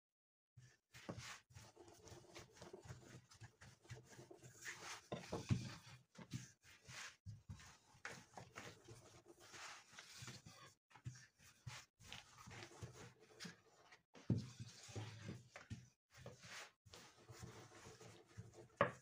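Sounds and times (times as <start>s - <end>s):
rolling pin rubbing over dough: 0.6s - 19.0s.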